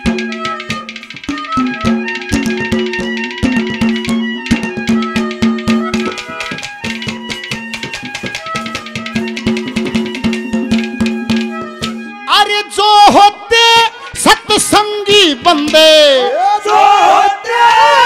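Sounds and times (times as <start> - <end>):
fast hand drum strokes: 0.0 - 12.2
melody instrument: 0.0 - 13.0.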